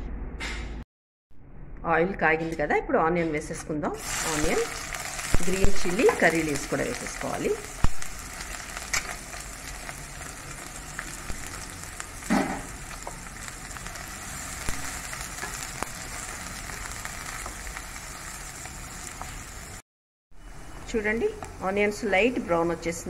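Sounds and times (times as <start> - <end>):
vegetables sizzling in hot oil: 4.0 - 19.8.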